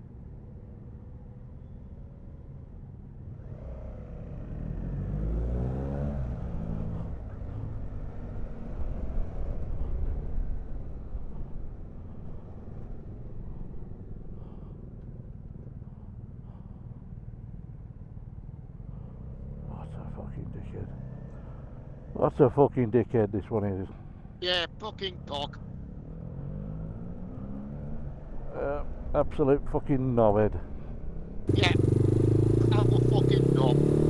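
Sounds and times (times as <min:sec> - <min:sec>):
motorcycle engine revving: 0:03.4 - 0:09.8, 0:25.6 - 0:29.1, 0:31.1 - 0:34.0.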